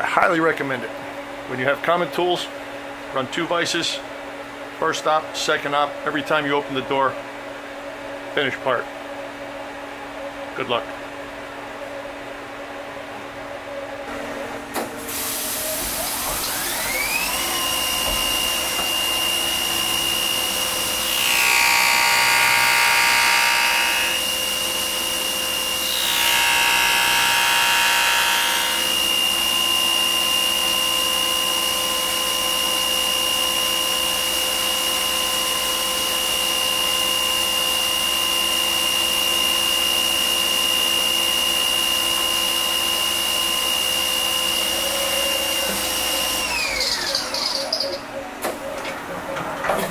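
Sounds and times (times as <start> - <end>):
end mill cutting plastic: 15.9 - 32.2
milling spindle whine: 16.4 - 32.3.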